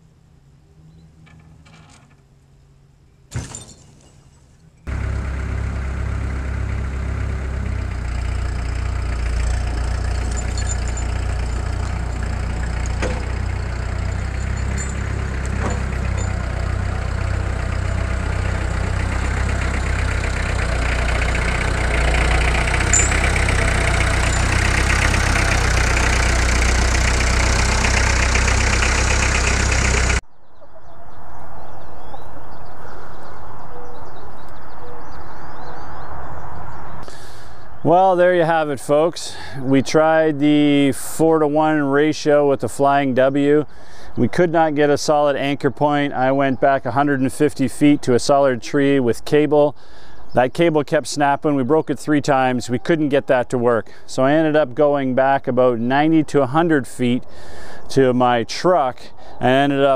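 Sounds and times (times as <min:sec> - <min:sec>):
tractor engine under load: 0:01.1 - 0:30.2.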